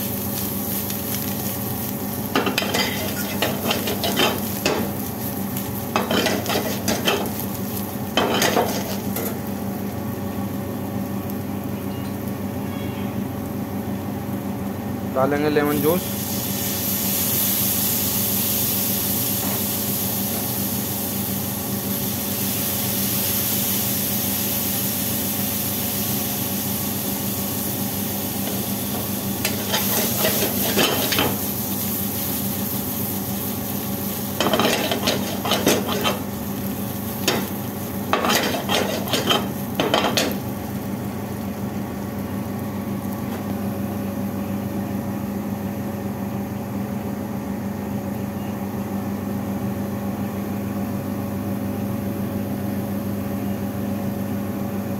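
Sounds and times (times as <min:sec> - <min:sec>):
potatoes sizzling in oil: 0:00.0 - 0:12.6, 0:15.7 - 0:43.2.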